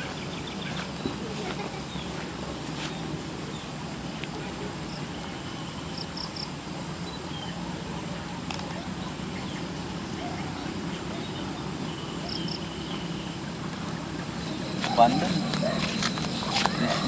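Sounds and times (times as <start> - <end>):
insects trilling: 8.9 - 17.0.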